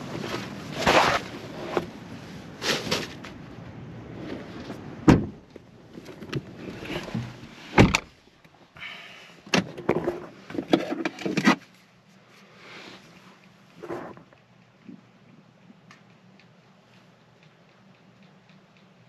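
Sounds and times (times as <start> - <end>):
heavy thuds of car door: 5.0 - 5.4.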